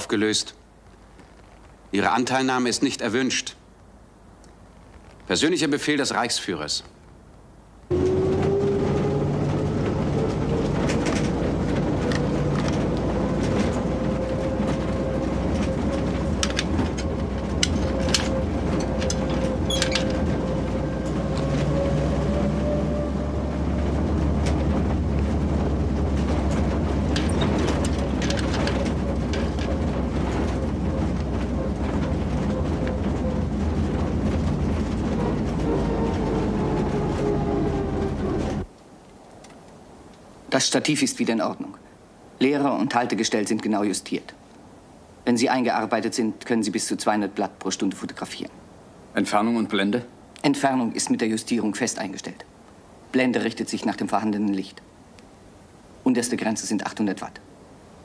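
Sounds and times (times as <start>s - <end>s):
railway car rumble: 7.9s - 38.7s
running hum: 7.9s - 38.7s
clicks and rattles: 15.6s - 20.4s, 26.1s - 35.7s.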